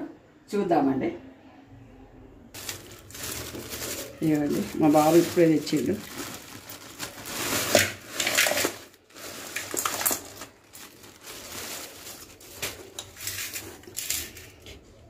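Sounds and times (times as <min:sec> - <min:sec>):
bag crackling and rustling: 0:02.6 - 0:14.5.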